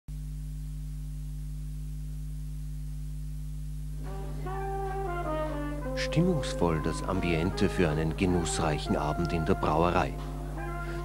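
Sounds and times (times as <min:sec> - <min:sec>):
low electrical hum: 0:00.1 - 0:11.0
music with held notes stepping down: 0:04.0 - 0:11.0.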